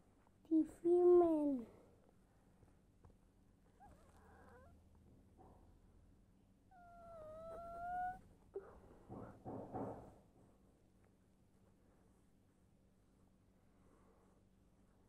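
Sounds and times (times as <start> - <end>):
pet animal whining: 3.6 - 4.9, 6.6 - 8.6
soft rough animal sounds: 3.6 - 5.7, 6.7 - 8.8.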